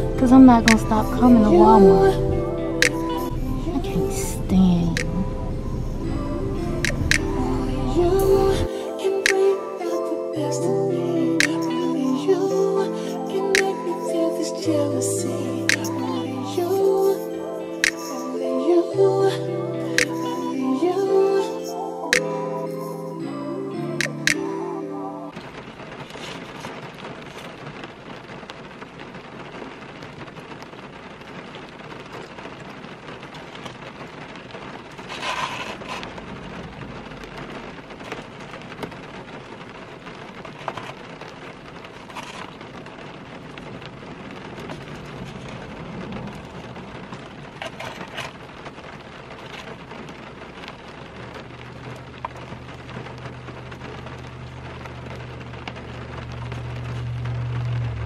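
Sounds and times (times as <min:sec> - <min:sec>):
low steady hum: 0:00.0 - 0:08.7, 0:52.1 - 0:58.0
rain on a car roof: 0:00.0 - 0:18.2, 0:25.3 - 0:58.0.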